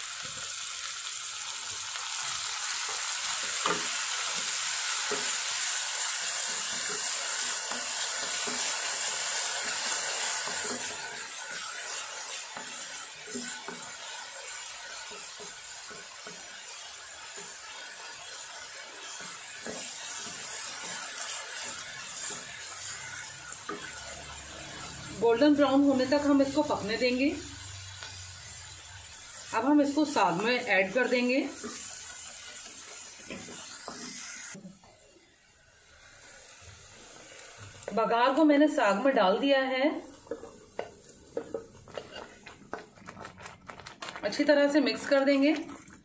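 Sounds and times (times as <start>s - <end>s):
onion sizzling in hot fat: 0.0s - 46.0s
wooden spatula scraping pan: 40.2s - 43.6s.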